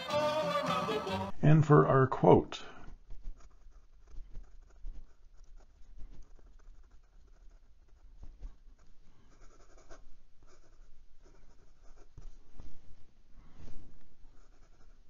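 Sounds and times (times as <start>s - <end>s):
fountain pen writing on paper: 3.2s - 8.2s, 9.3s - 12.2s, 14.4s - 15.0s.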